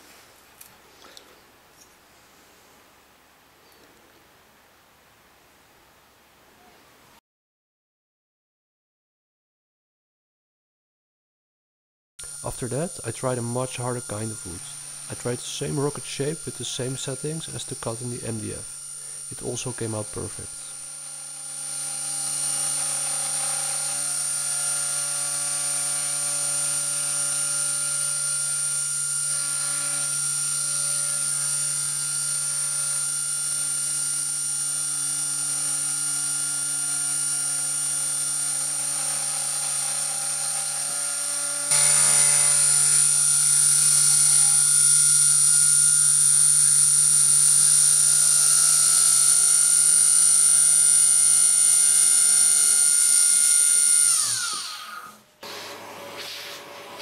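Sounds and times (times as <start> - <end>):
end mill cutting plywood: 12.2 - 57.0
router spindle motor whine: 12.2 - 57.0.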